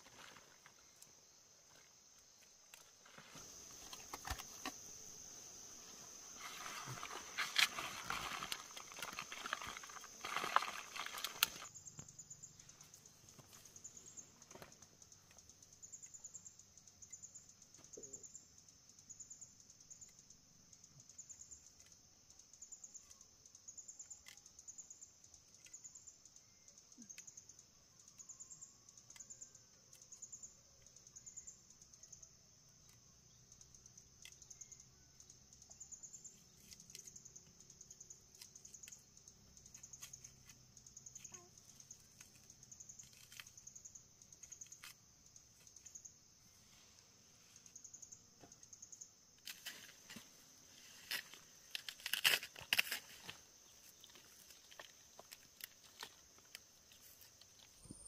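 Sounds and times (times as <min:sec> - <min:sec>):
insects trilling: 0:00.0 - 0:58.0
rustling: 0:01.6 - 0:04.9, 0:05.9 - 0:11.7.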